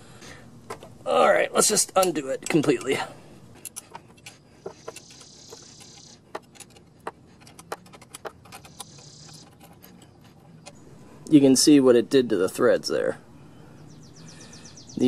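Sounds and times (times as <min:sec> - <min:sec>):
allen key clicking on bolt: 0:02.0 - 0:03.0
high insect buzz: 0:05.0 - 0:06.2, 0:08.8 - 0:09.4.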